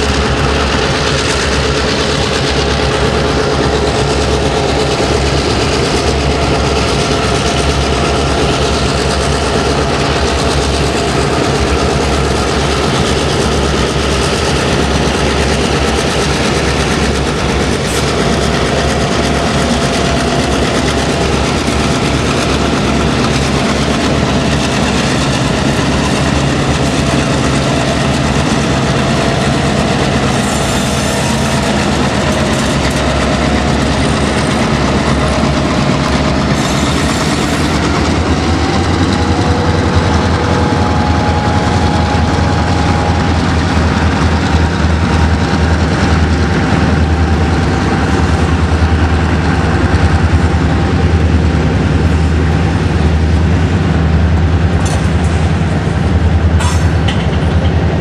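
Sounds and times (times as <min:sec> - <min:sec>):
freight cars rumbling past: 0:00.0 - 0:58.0
wheels clacking over rail joints: 0:00.0 - 0:58.0.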